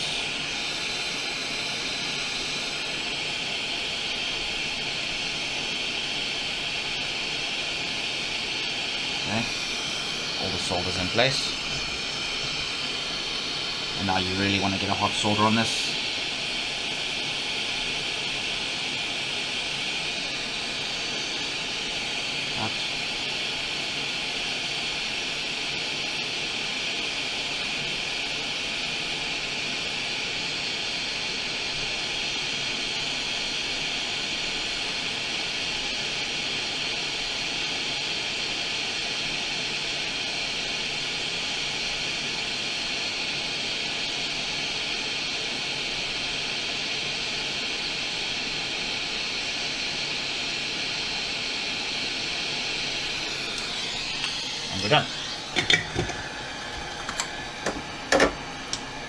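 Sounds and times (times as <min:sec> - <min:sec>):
high airy hiss: 0:07.2 - 0:23.3, 0:51.9 - 0:59.0.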